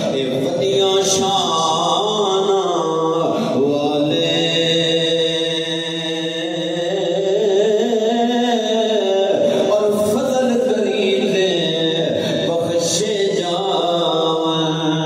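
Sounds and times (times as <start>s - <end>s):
man chanting into a microphone: 0.0s - 15.0s.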